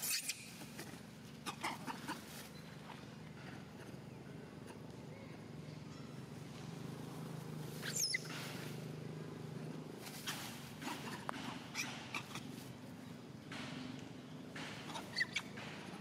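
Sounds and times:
monkeys squealing and chirping: 0.0s - 2.6s, 7.8s - 8.6s, 10.2s - 12.7s, 14.8s - 16.0s
rustling in leafy ground cover: 0.0s - 3.2s, 6.2s - 11.3s.

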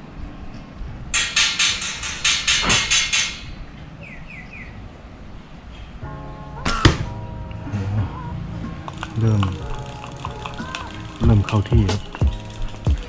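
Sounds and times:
bird chirping: 3.6s - 5.0s
rhythmic clicks: 8.6s - 13.0s.

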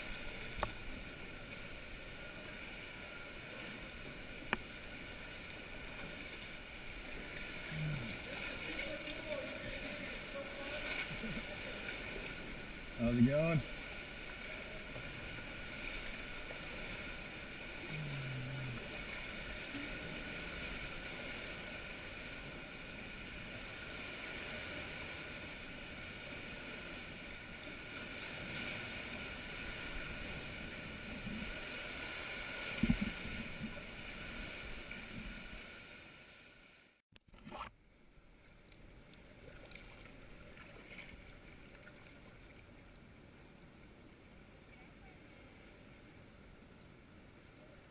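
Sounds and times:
seawater sloshing and lapping: 0.0s - 13.0s, 39.0s - 42.7s
paddle strokes: 0.0s - 36.0s, 38.5s - 42.9s.

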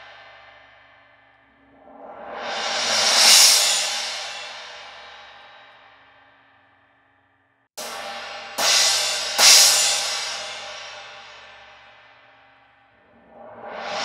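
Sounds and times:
crash cymbal struck: 7.8s - 14.0s.

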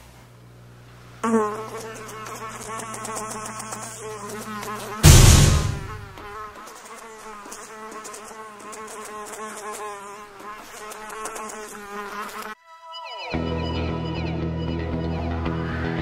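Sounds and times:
housefly buzzing: 1.2s - 12.6s
loud deep boom: 5.0s - 6.2s.

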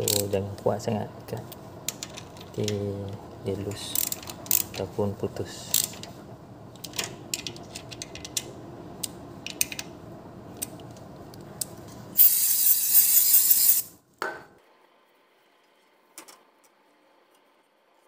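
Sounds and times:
aerosol spray can hissing: 12.2s - 13.9s
socket ratchet clicking: 12.2s - 13.9s.

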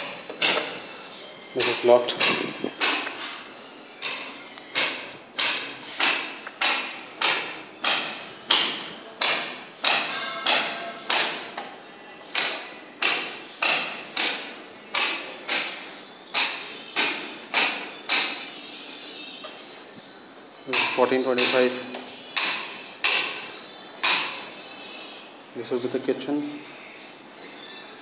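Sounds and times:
metallic ringing hammering: 0.0s - 11.6s, 12.3s - 18.6s, 20.7s - 24.6s.

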